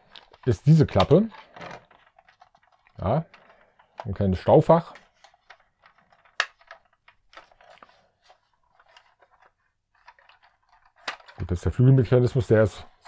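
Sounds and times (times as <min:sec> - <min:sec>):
plastic toy clicks and taps: 0:05.3 - 0:07.4.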